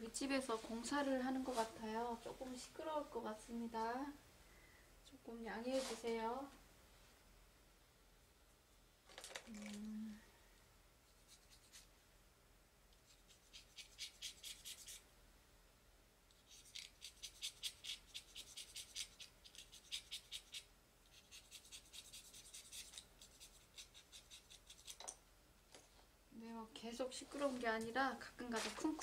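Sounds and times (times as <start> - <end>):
rapid scratchy strokes: 11.1 - 11.9, 13.0 - 15.0, 16.4 - 25.0.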